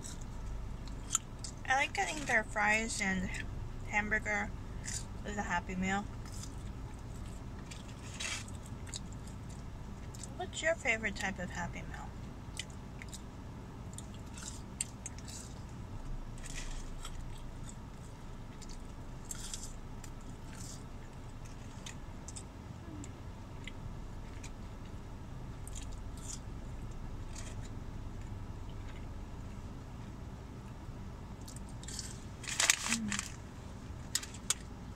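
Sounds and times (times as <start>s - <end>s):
person chewing fries: 0.0s - 1.6s, 6.1s - 10.4s, 12.5s - 29.1s, 31.4s - 33.4s
steady low hum: 0.0s - 34.9s.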